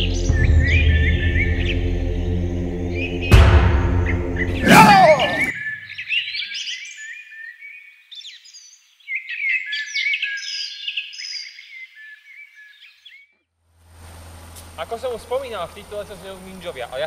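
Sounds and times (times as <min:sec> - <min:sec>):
music sting: 0:00.0 - 0:05.5
songbirds singing: 0:00.0 - 0:13.4.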